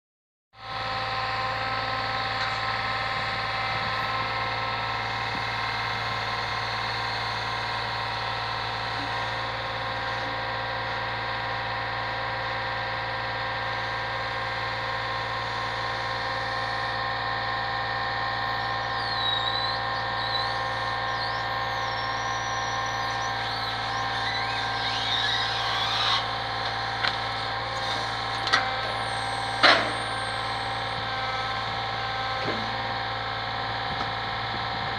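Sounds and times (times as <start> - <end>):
truck engine drone with whine: 0.6 - 34.9
high squeals: 18.4 - 31.1.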